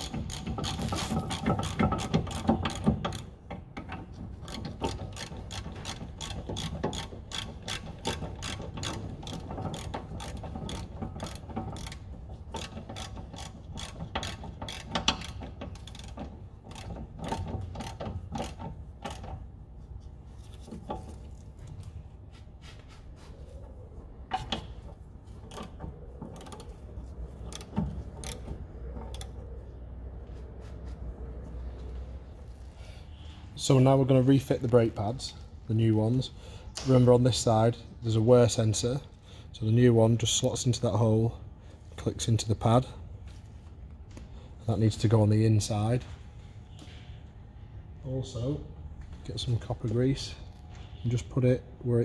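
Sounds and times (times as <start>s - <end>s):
ratchet wrench clicking: 0.0s - 19.5s, 26.4s - 29.4s.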